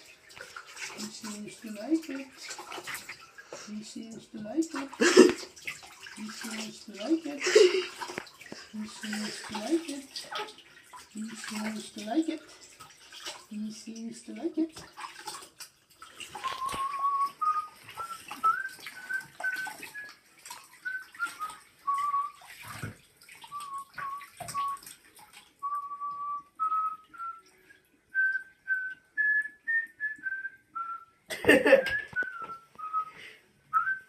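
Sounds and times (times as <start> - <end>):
water splashing in a bathtub: 0.0 - 34.0
person whistling a slow tune: 16.4 - 20.2, 20.8 - 22.4, 23.5 - 24.9, 25.6 - 27.5, 28.1 - 34.0.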